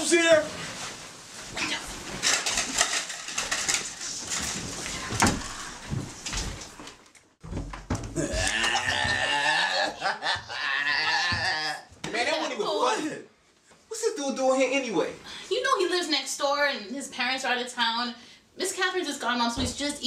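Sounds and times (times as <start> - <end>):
knocks and clatter: 7.4 - 9.2
person laughing: 8.2 - 11.8.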